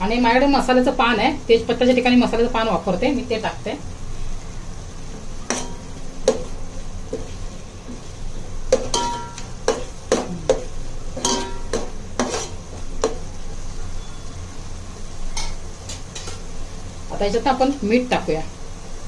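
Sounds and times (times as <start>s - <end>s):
masala frying in oil: 0.0s - 19.0s
spoon clanking against pan: 5.5s - 6.5s, 8.7s - 13.2s, 15.3s - 16.5s.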